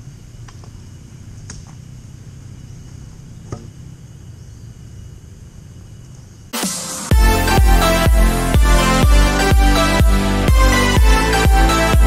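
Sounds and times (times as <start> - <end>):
low outdoor rumble: 0.0 - 8.8.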